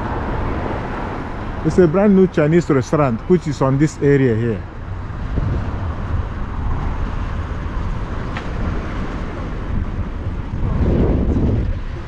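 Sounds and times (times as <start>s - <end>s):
car passing: 0.0s - 12.0s
low traffic rumble: 0.0s - 12.0s
wind on microphone: 4.6s - 12.0s.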